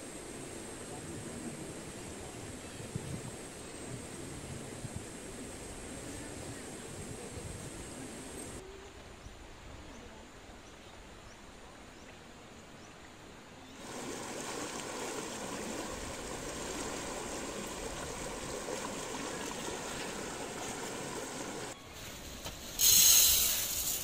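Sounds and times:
faint steady hiss: 0:00.0 - 0:24.0
river rushing over rocks: 0:13.8 - 0:21.8.

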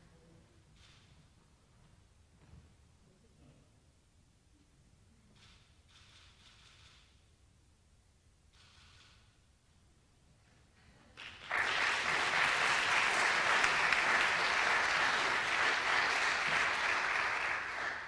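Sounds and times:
audience applauding: 0:11.2 - 0:18.0.

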